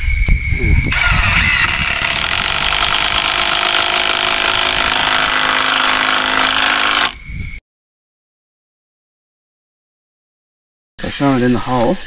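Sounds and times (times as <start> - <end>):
power tool motor running: 0.9 - 7.2.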